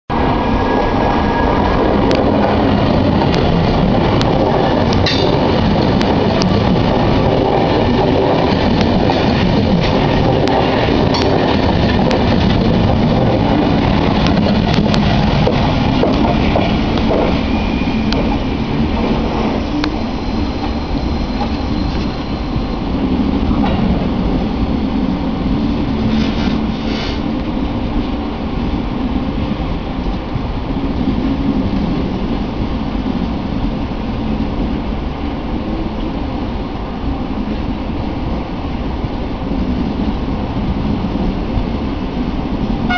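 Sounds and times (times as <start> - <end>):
train wheels rumbling on rail: 0.1 - 42.9
sharp clicks of train wheels: 1.5 - 22.7.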